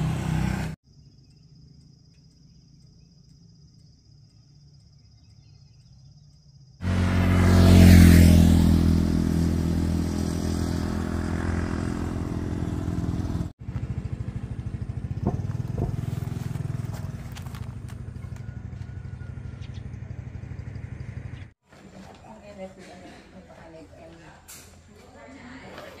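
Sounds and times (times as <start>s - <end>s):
motorbike engine running: 6.8s - 21.6s.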